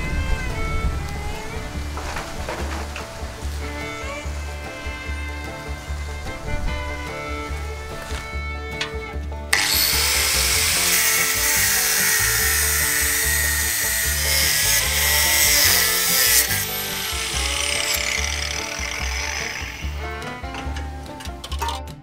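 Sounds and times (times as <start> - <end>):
angle grinder cutting steel: 9.5 - 20.8.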